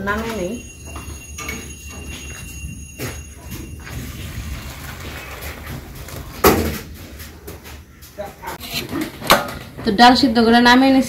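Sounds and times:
light metallic clinks: 0.6 - 3.8.

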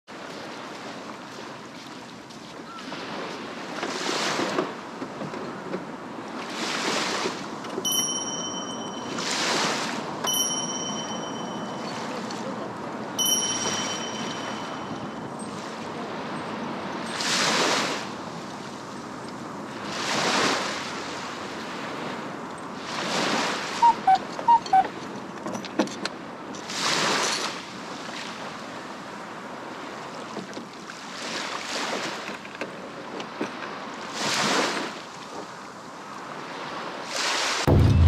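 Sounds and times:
small waves breaking on sand: 0.1 - 23.9, 26.2 - 37.7
two-note electronic chimes: 7.9 - 12.2, 13.2 - 15.5, 23.8 - 24.9.

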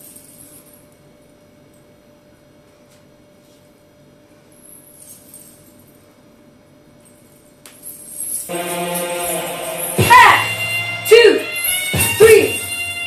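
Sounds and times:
coin hip scarf jingling: 7.0 - 10.8.

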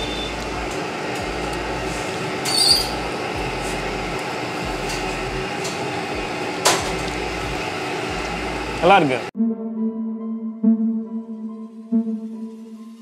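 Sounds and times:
high-pitched squeak: 2.4 - 3.0.

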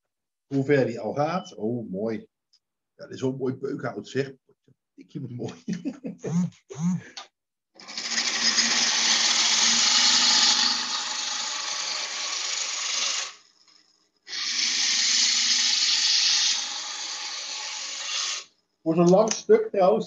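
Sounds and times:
wood lathe gouge cutting hiss: 7.8 - 18.5.

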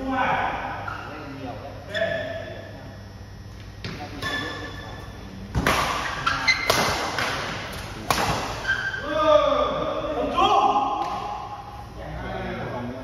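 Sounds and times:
rackets hitting shuttlecock: 5.5 - 9.0.

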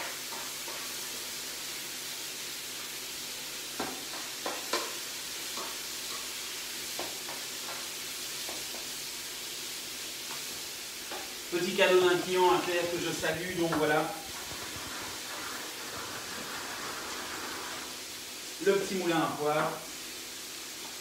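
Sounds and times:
food sizzling in oil in a frying pan: 0.0 - 21.0
spatula scraping a pan: 12.5 - 18.0.

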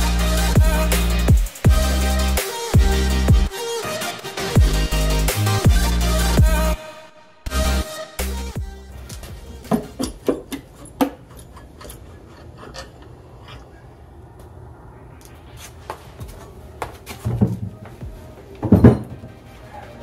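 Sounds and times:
metal engine part clinking: 9.7 - 13.7
heavy thumps: 17.2 - 19.2.

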